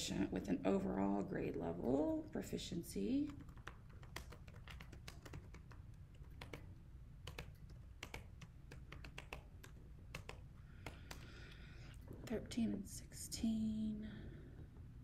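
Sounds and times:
typing on laptop keyboards: 0:03.2 - 0:11.4.

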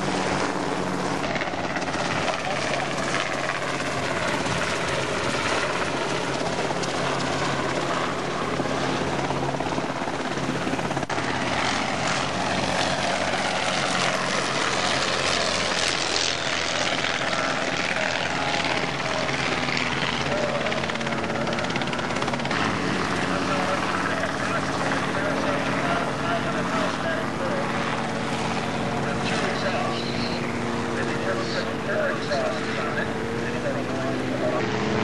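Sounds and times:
aircraft engine and propeller drone: 0:00.0 - 0:35.0.

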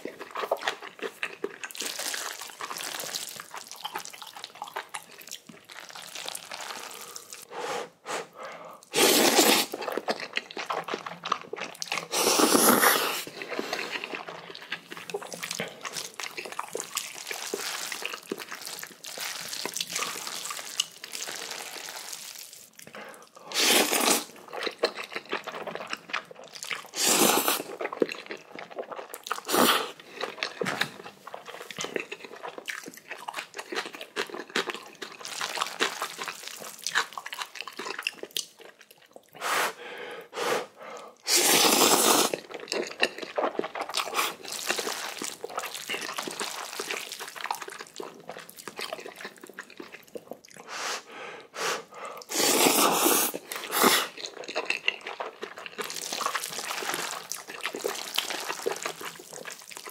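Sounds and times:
wet chewing and crunching: 0:00.0 - 0:07.5, 0:08.8 - 0:39.4, 0:41.0 - 0:50.7, 0:52.2 - 0:59.9
noodle slurping: 0:05.8 - 0:10.0, 0:11.9 - 0:18.6, 0:23.4 - 0:24.4, 0:26.8 - 0:27.8, 0:39.4 - 0:48.0, 0:51.6 - 0:59.9.

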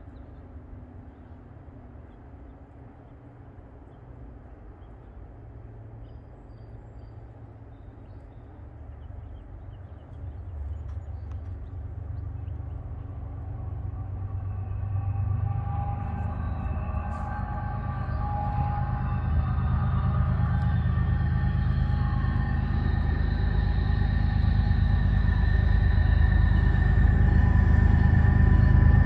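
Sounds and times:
diesel locomotives rumbling: 0:00.0 - 0:29.0.

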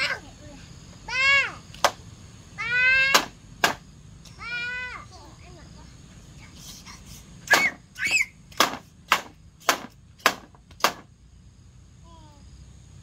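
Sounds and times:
sharp knocks: 0:03.1 - 0:03.8, 0:08.5 - 0:11.1.

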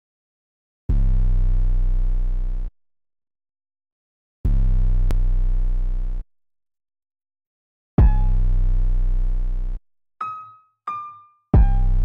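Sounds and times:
deep electronic tones: 0:08.0 - 0:08.7, 0:10.2 - 0:12.0.

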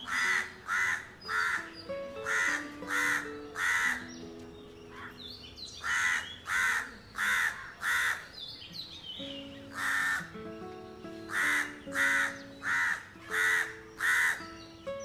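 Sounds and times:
crow cawing: 0:00.0 - 0:04.2, 0:04.9 - 0:05.2, 0:05.8 - 0:08.3, 0:09.7 - 0:10.4, 0:11.2 - 0:14.6.

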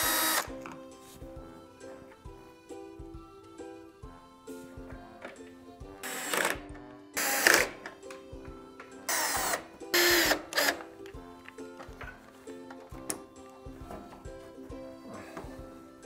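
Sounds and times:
cordless screwdriver running: 0:00.0 - 0:00.5, 0:06.0 - 0:06.6, 0:07.2 - 0:07.8, 0:09.1 - 0:10.8.

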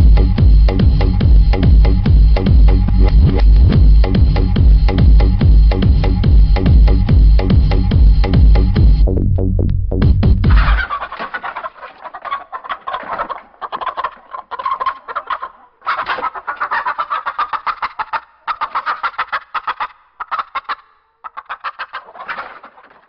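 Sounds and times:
chicken clucking and cackling: 0:10.5 - 0:23.0.

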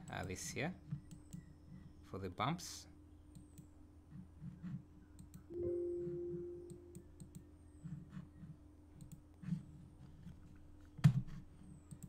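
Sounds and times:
computer mouse clicks: 0:00.0 - 0:01.5, 0:03.3 - 0:05.5, 0:06.9 - 0:09.5, 0:10.2 - 0:12.0
single pitched tone: 0:05.5 - 0:07.1.

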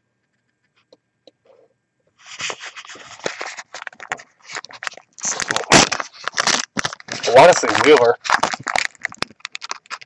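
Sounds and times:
foil wrapper crinkling and tearing: 0:02.2 - 0:10.0.

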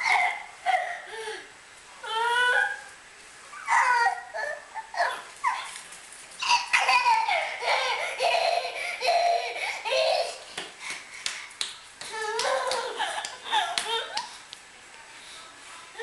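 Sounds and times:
baby laughing: 0:06.4 - 0:10.5, 0:12.1 - 0:14.3.

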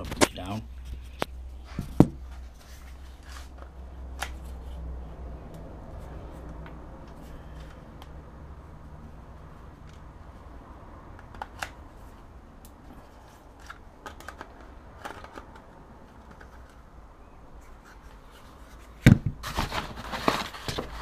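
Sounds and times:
plastic objects clicking: 0:13.6 - 0:16.8
clattering and rustling: 0:17.7 - 0:21.0.

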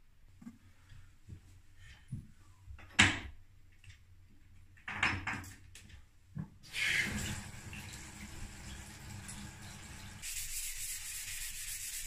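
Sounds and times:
water gushing from bath tap: 0:06.6 - 0:10.3.

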